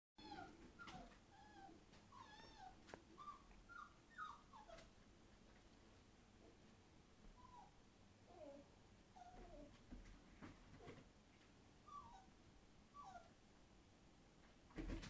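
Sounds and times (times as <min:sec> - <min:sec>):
puppies whining and squeaking: 0:00.2 - 0:04.9, 0:07.4 - 0:07.8, 0:11.8 - 0:12.4, 0:13.0 - 0:13.4.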